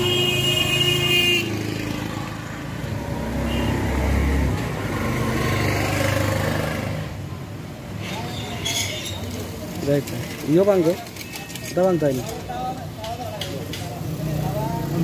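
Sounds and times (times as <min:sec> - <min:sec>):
vehicle horn: 0:00.0 - 0:01.6, 0:03.4 - 0:03.8
passing motor vehicles: 0:00.0 - 0:15.0.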